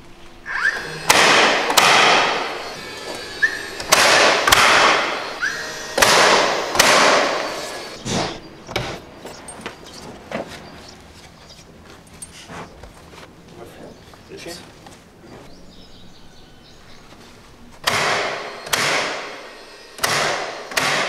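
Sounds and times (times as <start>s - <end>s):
nail gun rising whine: 0.4s - 10.1s, 17.8s - 21.0s
nail gun shots: 0.5s - 9.0s, 17.8s - 21.0s.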